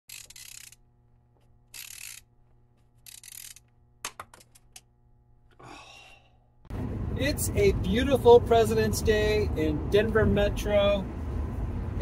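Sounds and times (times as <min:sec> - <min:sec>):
sharp mechanical clicks: 0:00.1 - 0:00.8, 0:01.7 - 0:02.3, 0:03.0 - 0:04.9.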